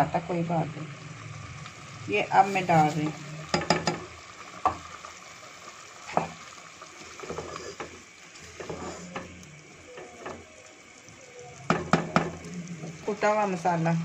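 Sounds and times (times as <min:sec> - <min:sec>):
pot of gravy sizzling: 0:00.0 - 0:14.0
spoon knocking against pot: 0:03.5 - 0:04.8
wooden spoon scraping a pan: 0:07.0 - 0:09.4.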